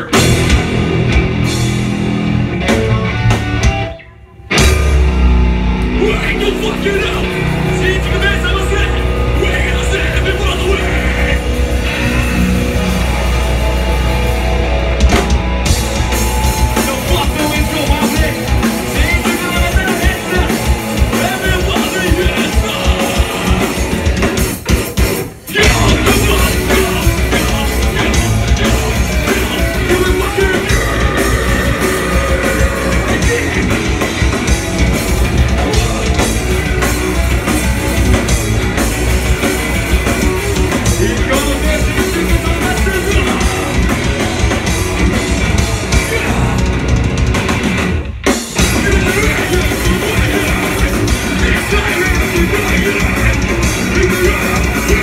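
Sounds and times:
fast drumming: 0.0s - 3.8s, 6.0s - 55.0s
distorted guitars: 0.0s - 55.0s
person singing: 16.5s - 24.0s, 25.5s - 34.3s, 35.5s - 37.0s, 40.1s - 44.2s, 45.4s - 47.1s, 48.6s - 55.0s.

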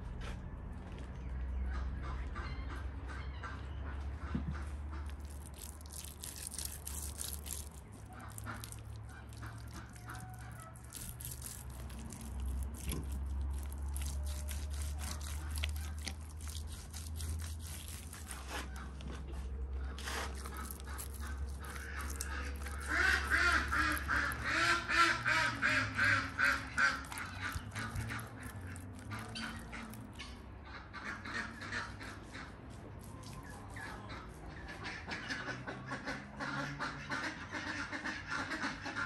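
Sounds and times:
waterfowl calling rapidly: 4.9s - 19.0s, 19.8s - 32.5s
hands patting paste on fish: 5.0s - 30.2s.

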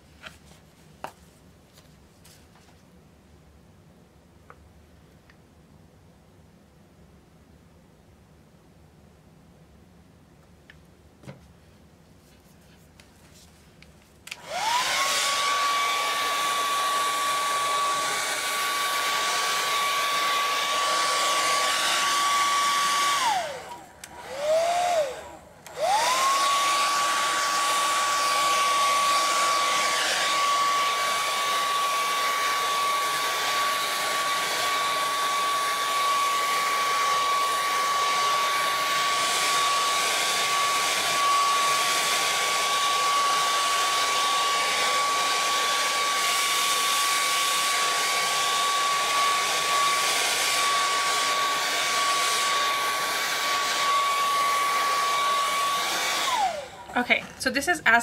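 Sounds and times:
hair dryer running: 14.2s - 58.0s.

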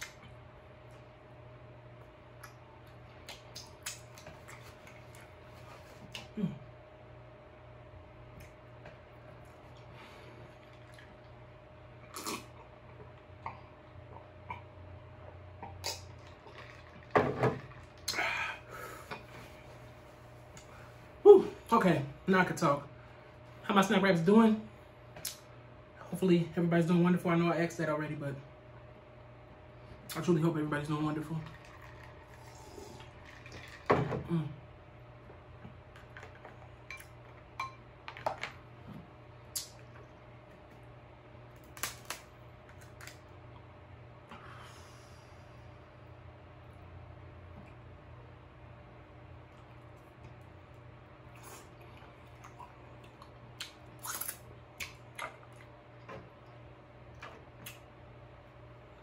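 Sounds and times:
man drinking water: 31.4s - 34.5s.

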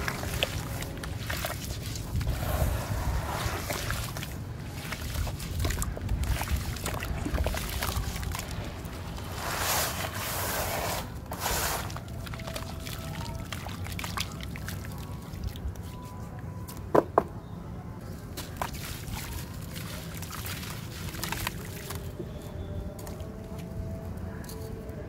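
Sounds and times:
water dripping and trickling: 0.0s - 10.1s, 11.3s - 16.8s, 18.2s - 23.7s.

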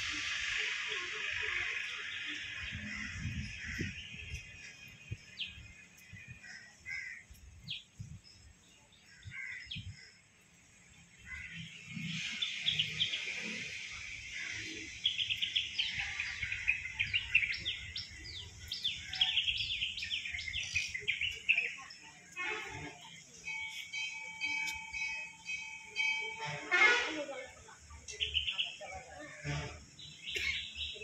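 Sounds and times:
birds chirping: 0.0s - 26.7s, 27.7s - 31.0s.

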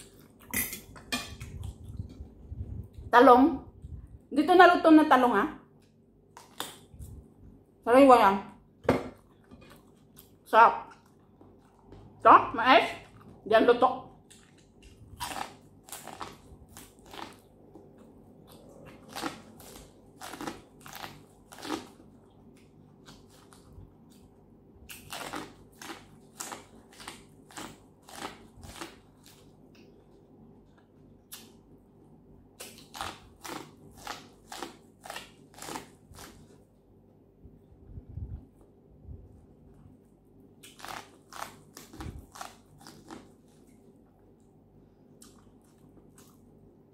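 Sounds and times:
crisp crunches of chewing corn: 14.3s - 24.3s, 24.9s - 29.8s, 32.6s - 36.6s, 40.6s - 43.9s.

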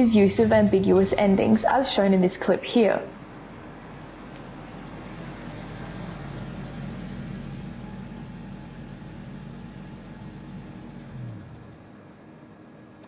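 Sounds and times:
car engine idling: 3.2s - 12.0s.

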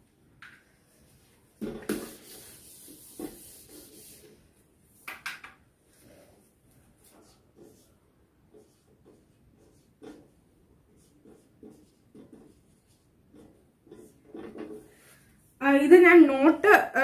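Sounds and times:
eraser rubbing on whiteboard: 1.9s - 4.4s, 7.0s - 14.9s.

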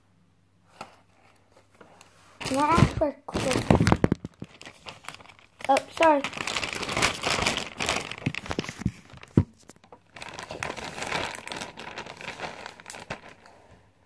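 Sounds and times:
plastic bag crinkling: 2.4s - 13.7s.

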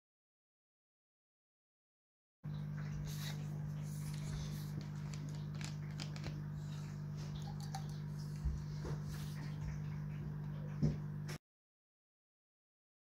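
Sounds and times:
steady low hum: 2.5s - 11.4s.

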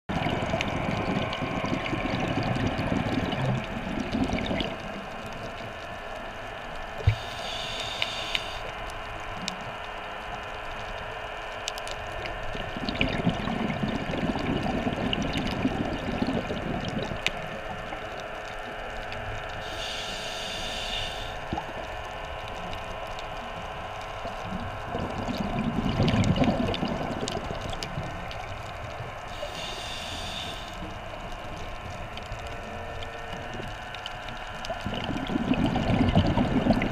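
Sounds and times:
exhaled bubbles rumbling: 0.1s - 20.0s, 20.8s - 36.9s
underwater water noise: 0.1s - 36.9s
regulator inhalation hiss: 7.0s - 8.7s, 19.6s - 21.4s, 29.3s - 30.9s.

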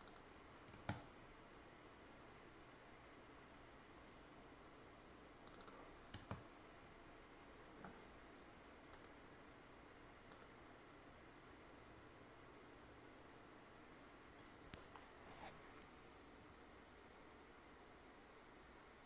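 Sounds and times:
mouse and keyboard clicks: 0.0s - 1.1s, 5.4s - 6.5s, 8.9s - 9.2s, 10.3s - 10.6s.

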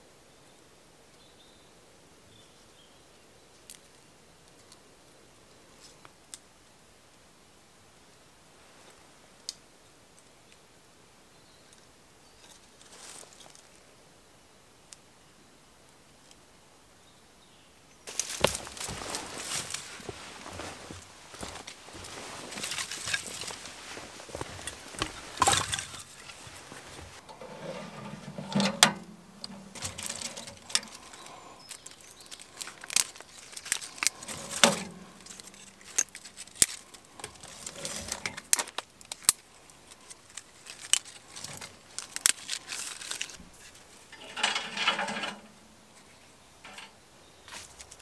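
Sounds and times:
twigs laid on metal grate: 12.4s - 13.8s, 18.1s - 48.0s
twigs snapping: 18.1s - 27.3s, 29.4s - 44.2s
sticks rustling: 18.1s - 48.0s.

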